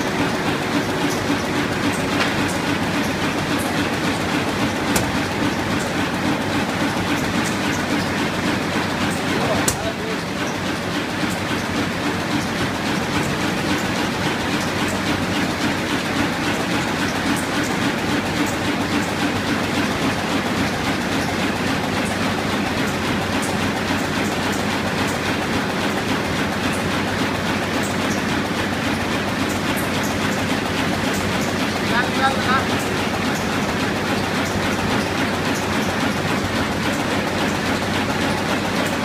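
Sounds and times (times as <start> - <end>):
low machine hum: 0.0 - 27.2
printing press clatter: 0.0 - 39.0.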